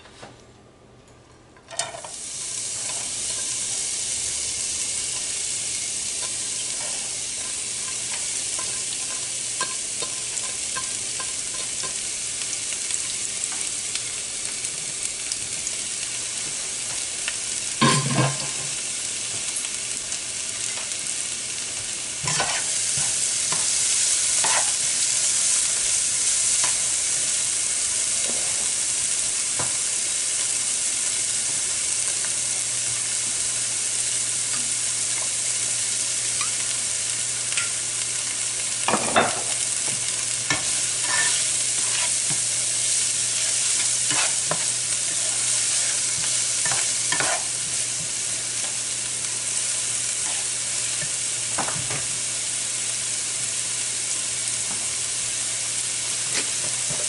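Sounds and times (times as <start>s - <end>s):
vegetables sizzling in hot oil: 1.7s - 57.0s
spatula stirring in pan: 22.2s - 24.8s, 39.8s - 48.1s.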